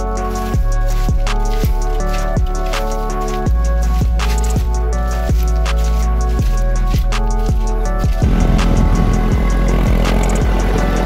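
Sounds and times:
deep drum hits: 0:08.2 - 0:10.6
sustained chords: 0:08.2 - 0:11.0.

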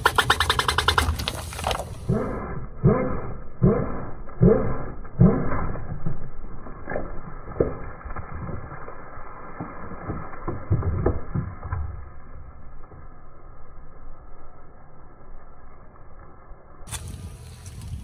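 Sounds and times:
rolling tyre rumble: 0:00.0 - 0:18.0
plastic bottle crackling and popping: 0:06.7 - 0:12.1.

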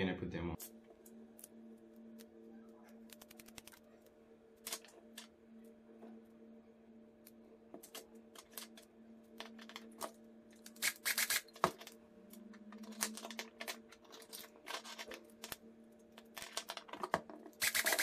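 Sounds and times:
steady low hum: 0:00.0 - 0:18.0
plastic parts and screws rattling: 0:09.4 - 0:15.6, 0:16.2 - 0:18.0.

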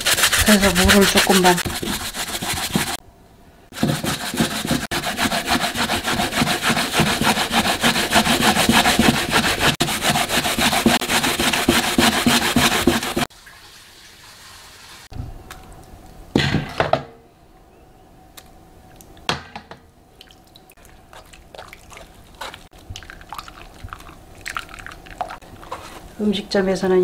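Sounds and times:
radish scraping on grater: 0:00.0 - 0:03.0, 0:03.8 - 0:13.3.

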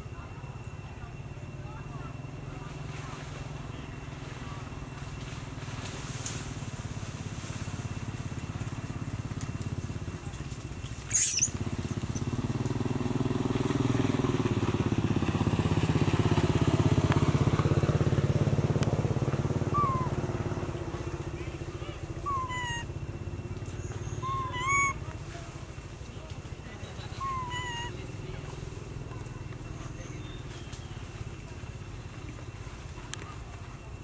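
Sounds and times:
motorcycle-like engine running: 0:01.9 - 0:34.0
monkey shrieking: 0:11.1 - 0:11.6, 0:19.7 - 0:20.3, 0:22.2 - 0:22.9, 0:24.0 - 0:25.0, 0:27.2 - 0:28.0.

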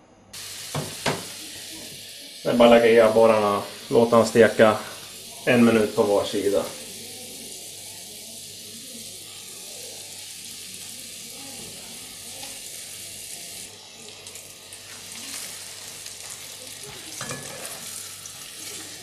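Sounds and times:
fish fillets sizzling in a pan: 0:00.4 - 0:19.0
spatula scraping a pan: 0:14.8 - 0:19.0.

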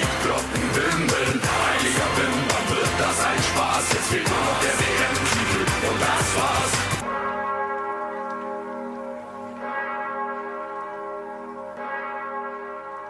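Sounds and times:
church bells ringing: 0:04.3 - 0:13.0.

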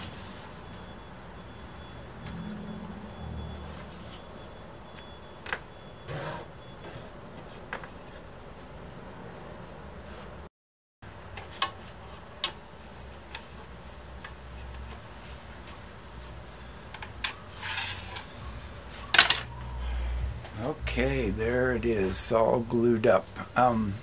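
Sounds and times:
low steady hum: 0:11.1 - 0:24.0.

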